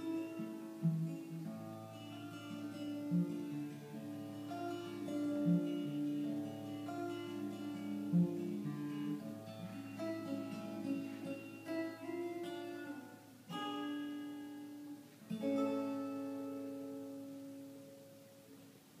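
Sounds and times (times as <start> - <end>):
acoustic guitar fingerpicking: 0.0 - 19.0
guitar chords ringing: 0.0 - 19.0.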